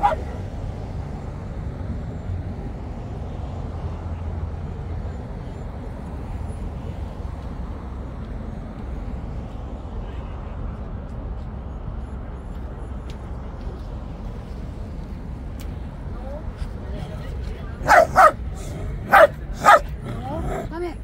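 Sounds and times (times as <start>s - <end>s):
distant road traffic rumble: 0.0s - 21.0s.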